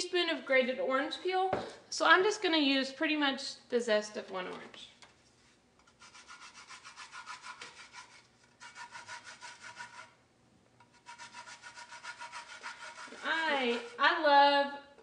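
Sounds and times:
orange peel rasping on zester: 0:05.9 - 0:10.2, 0:10.9 - 0:14.0.

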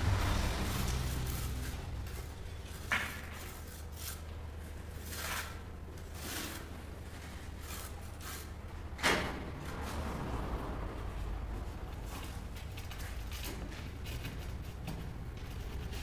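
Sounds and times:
steel trowel scraping mortar: 0:00.3 - 0:04.3, 0:04.9 - 0:08.6.

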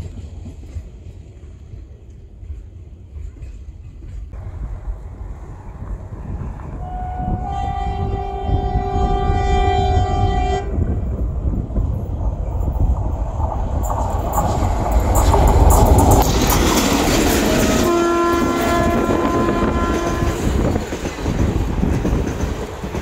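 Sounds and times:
diesel locomotive engines rumbling: 0:00.0 - 0:23.0
train horn blast: 0:06.2 - 0:11.0, 0:17.4 - 0:20.7
wheel clatter over rails: 0:11.5 - 0:18.7.

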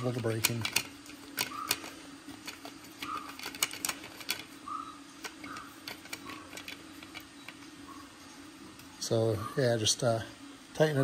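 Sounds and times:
light clicks of tool and screws: 0:00.0 - 0:04.5
steady low hum: 0:00.0 - 0:11.0.

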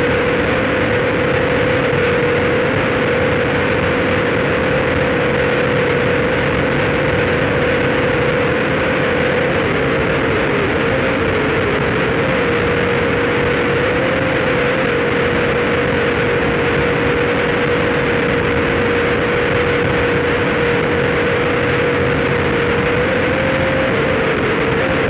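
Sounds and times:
dense distorted noise: 0:00.0 - 0:25.0
steady mid-pitched tone: 0:00.0 - 0:25.0.

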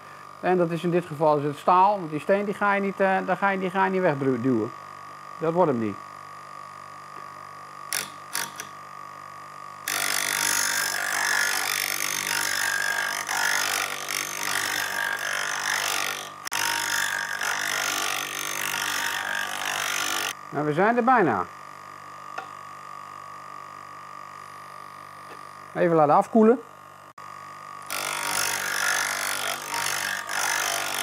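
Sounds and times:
grinding stone motor hum: 0:09.8 - 0:20.4, 0:27.8 - 0:31.0.

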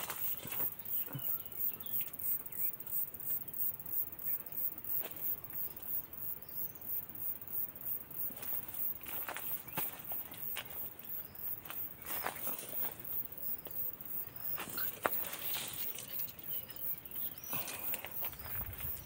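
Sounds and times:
insect chirping: 0:00.0 - 0:19.0
faint bird chirps: 0:00.1 - 0:02.8, 0:13.6 - 0:19.0.

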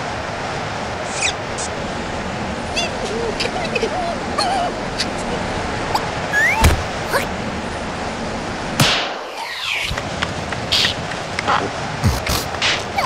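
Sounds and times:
strong wind rushing: 0:00.0 - 0:13.0
sharp knocks: 0:06.6 - 0:07.0.

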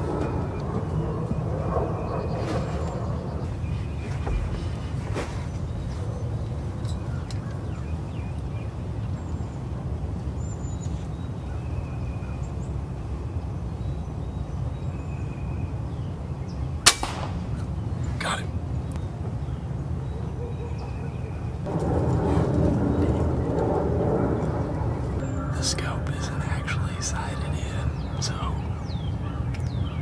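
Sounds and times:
low background rumble: 0:00.0 - 0:20.4, 0:21.0 - 0:30.0
air rifle shot: 0:16.8 - 0:17.9.

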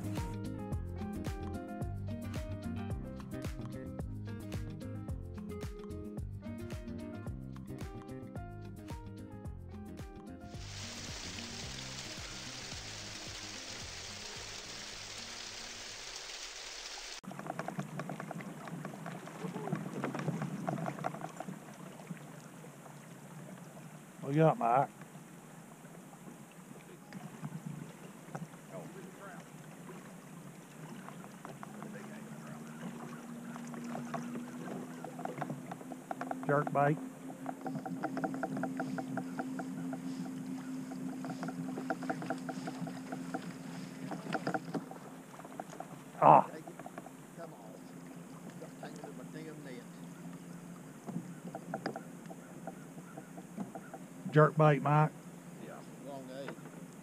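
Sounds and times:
steady hiss: 0:10.6 - 0:17.2
water splashing against kayak hull: 0:10.6 - 0:57.0.

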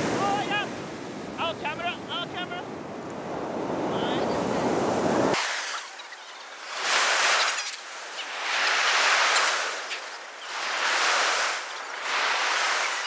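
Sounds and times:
surf washing up pebble beach: 0:00.0 - 0:13.0.

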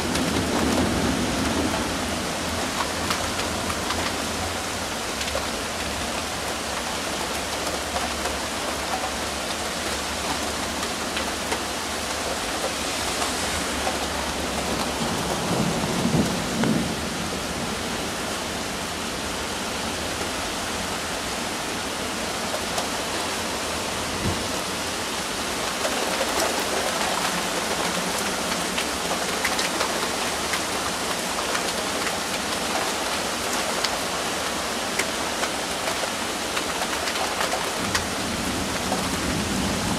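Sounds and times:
steady rain: 0:00.0 - 0:39.9
thunder rumbling: 0:13.2 - 0:17.9.

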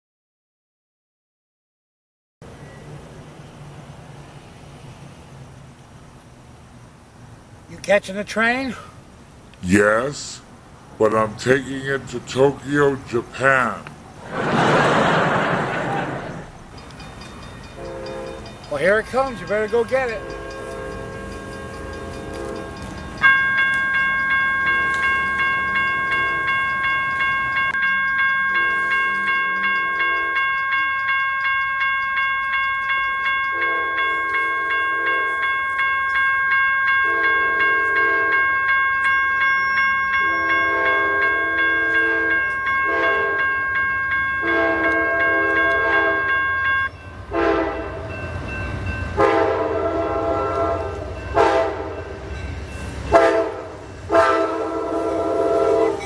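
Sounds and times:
train rumble: 0:02.4 - 0:56.0
railroad crossing bells ringing: 0:09.6 - 0:14.2, 0:16.4 - 0:56.0
train horn blasts: 0:17.8 - 0:22.9, 0:28.5 - 0:30.5, 0:33.5 - 0:35.6, 0:37.0 - 0:38.6, 0:40.2 - 0:43.8, 0:44.4 - 0:48.1, 0:49.2 - 0:52.1, 0:53.1 - 0:56.0.

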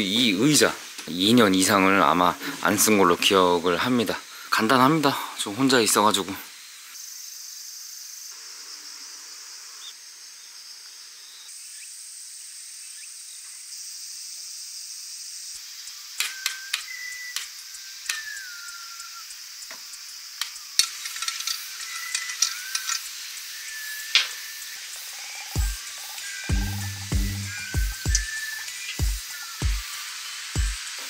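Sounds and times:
steady high hiss: 0:00.0 - 0:31.0
camping gear clicks and knocks: 0:20.4 - 0:23.1.

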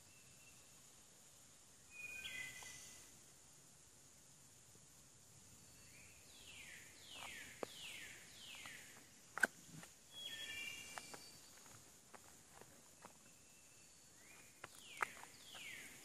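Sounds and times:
faint steady hiss: 0:00.0 - 0:16.0
songbird whistling: 0:01.9 - 0:03.0, 0:10.1 - 0:11.6.

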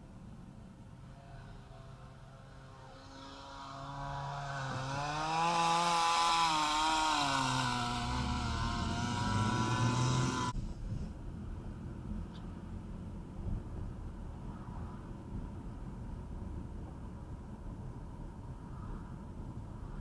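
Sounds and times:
vehicle engine revving: 0:01.1 - 0:10.6.

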